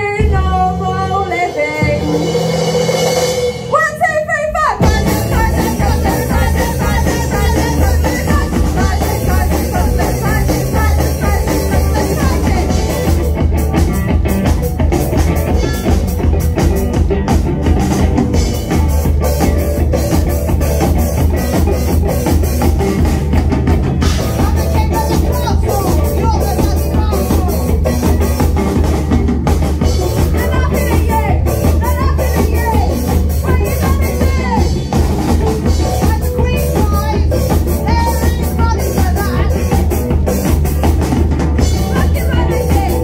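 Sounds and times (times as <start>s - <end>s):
bass guitar: 0.0s - 43.0s
drum kit: 0.0s - 43.0s
electric guitar: 0.0s - 43.0s
person singing: 4.6s - 13.4s, 24.1s - 29.2s, 29.8s - 34.9s, 35.7s - 40.4s, 41.6s - 43.0s.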